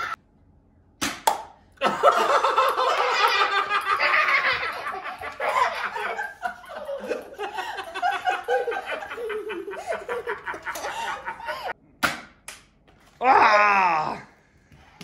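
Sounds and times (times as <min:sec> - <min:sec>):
boy laughing: 0:01.8 - 0:11.8
man laughing: 0:01.8 - 0:11.8.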